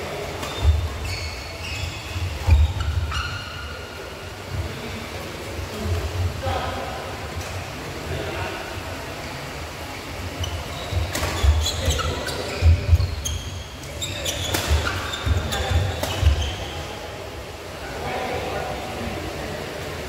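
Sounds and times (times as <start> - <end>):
shoe squeaks on court: 0.4 - 3.8, 10.4 - 16.8
racket hitting shuttlecock: 14.3 - 16.4.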